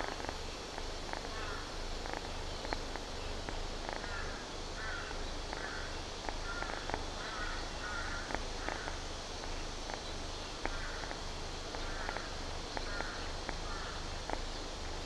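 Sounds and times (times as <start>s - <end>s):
birds calling: 0.0s - 14.8s.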